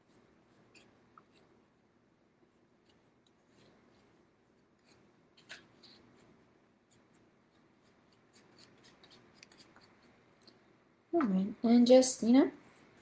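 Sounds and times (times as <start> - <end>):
paintbrush scratching on paper plate: 6.9 - 10.2.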